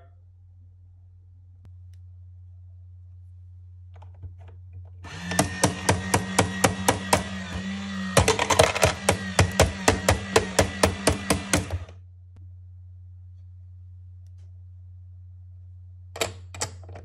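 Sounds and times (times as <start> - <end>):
steady motor hum: 5.0 - 12.0.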